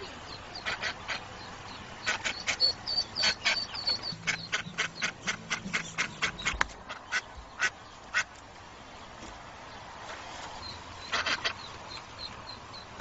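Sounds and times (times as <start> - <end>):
duck quacking: 0.0 - 8.3, 11.0 - 11.7
ducklings peeping: 0.0 - 13.0.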